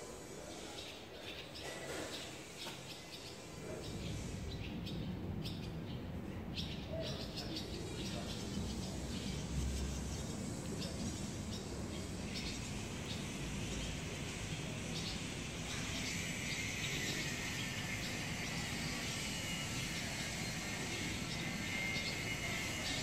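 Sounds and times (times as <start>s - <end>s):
swallows chirping: 0.1s - 23.0s
faint high whine: 7.7s - 23.0s.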